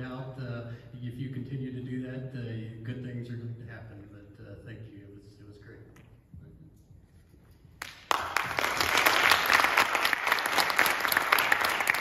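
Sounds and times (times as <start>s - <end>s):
audience applauding: 7.8s - 12.0s.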